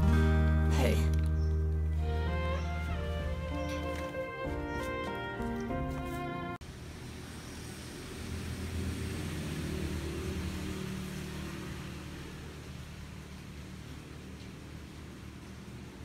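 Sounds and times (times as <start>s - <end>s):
vehicle engine passing by: 5.7s - 16.0s.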